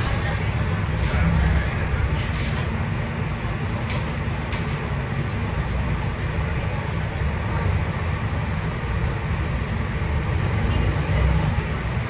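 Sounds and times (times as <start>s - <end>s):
bus diesel engine drone: 0.0s - 12.0s
road and tyre noise: 0.0s - 12.0s.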